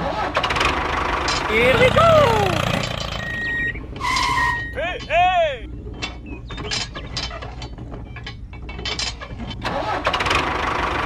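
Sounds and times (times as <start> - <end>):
small metal clicks and rattles: 6.0 - 10.4.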